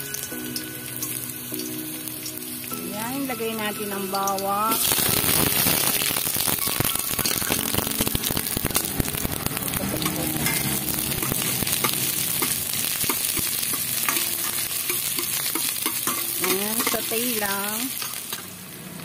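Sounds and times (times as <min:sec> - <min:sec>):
onion sizzling in hot oil: 0:00.0 - 0:19.0
metal spatula scraping pot: 0:10.0 - 0:18.5.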